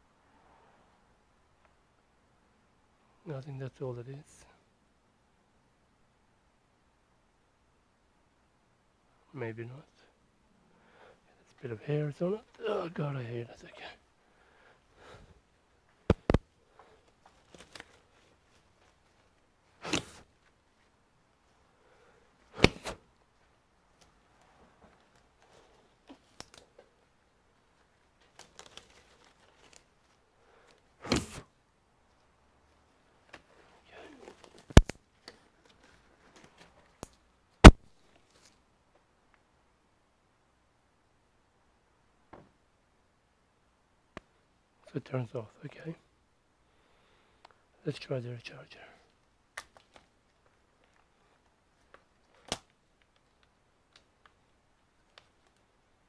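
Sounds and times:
latex gloves crinkling: 0:15.8 - 0:21.6, 0:22.5 - 0:31.4, 0:49.5 - 0:55.7
cables and charger handled: 0:16.1 - 0:20.6, 0:24.0 - 0:27.0, 0:27.8 - 0:31.4, 0:33.2 - 0:38.6, 0:49.6 - 0:55.7.

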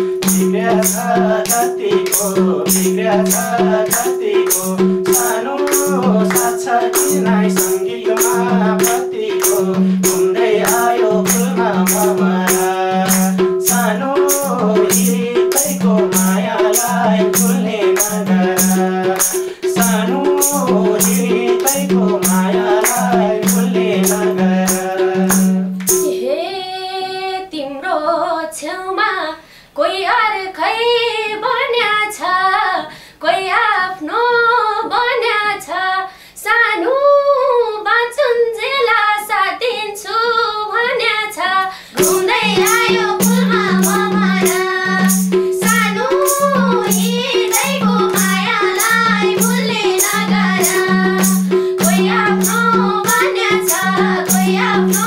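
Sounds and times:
hand drum beat: 0:00.0 - 0:26.2, 0:42.0 - 0:55.0
sharp percussion strokes: 0:00.0 - 0:26.3, 0:41.9 - 0:55.0
voices singing folk song: 0:00.0 - 0:55.0
women singing unaccompanied: 0:00.0 - 0:55.0.

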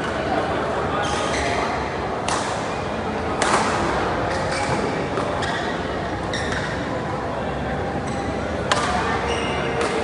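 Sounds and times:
murmur of voices: 0:00.0 - 0:10.0
rackets smacking shuttlecock: 0:03.4 - 0:05.4.

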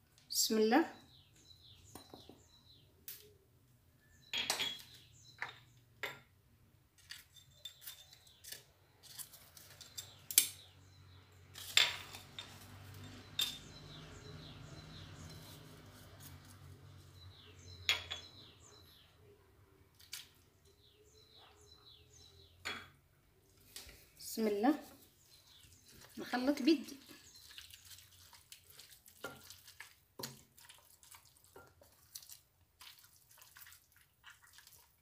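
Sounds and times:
dishes clinking on clay pot: 0:04.3 - 0:06.3, 0:17.8 - 0:18.4.

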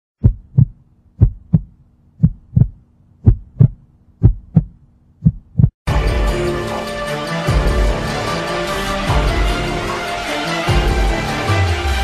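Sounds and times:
heartbeat thumps: 0:00.2 - 0:05.8.

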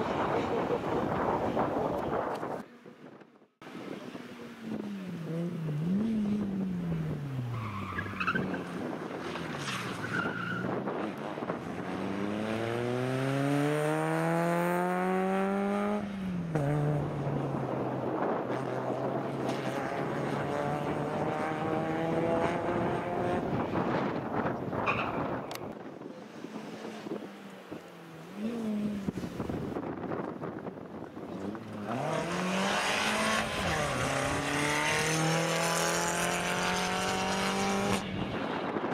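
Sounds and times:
rally car engine revving: 0:10.2 - 0:24.2, 0:31.4 - 0:38.9.

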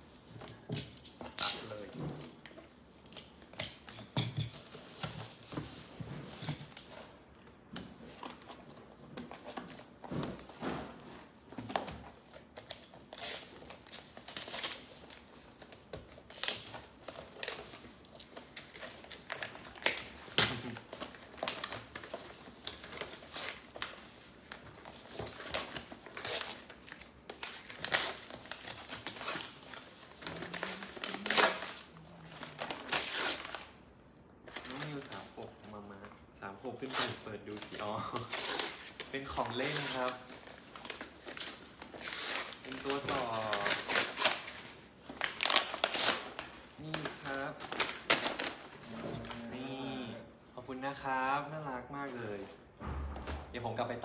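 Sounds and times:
wrapping paper crinkling: 0:12.0 - 0:33.8, 0:36.8 - 0:49.7.

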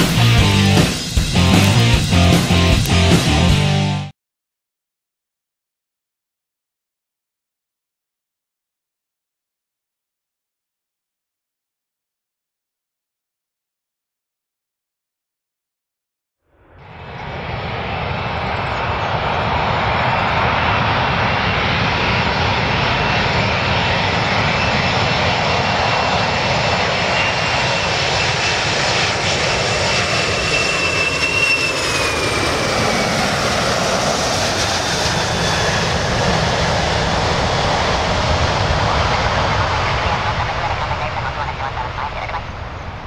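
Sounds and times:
jet engines roaring: 0:00.0 - 0:03.9, 0:16.7 - 0:43.0.

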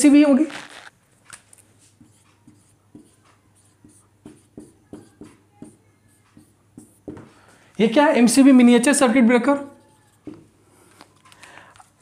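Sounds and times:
marker squeaking on whiteboard: 0:00.4 - 0:00.9, 0:01.8 - 0:07.3, 0:09.6 - 0:10.5.

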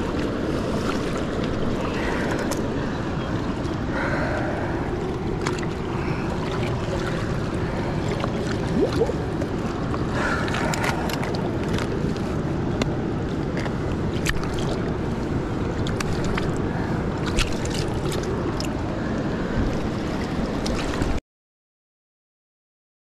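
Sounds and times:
river water flowing: 0:00.0 - 0:21.2
wind rumble on microphone: 0:00.0 - 0:21.2.

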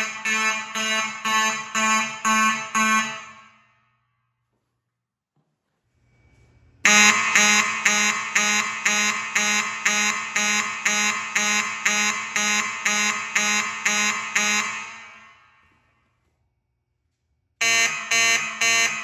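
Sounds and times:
fire alarm horn pulsing: 0:00.0 - 0:03.9, 0:06.8 - 0:15.9, 0:17.6 - 0:19.0.

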